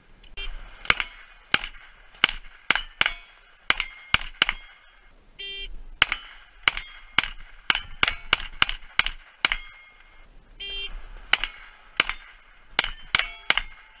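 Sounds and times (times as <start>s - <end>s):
carbine gunshots: 0.6s - 5.1s, 6.0s - 14.0s
metallic clang of steel plate: 11.3s - 14.0s.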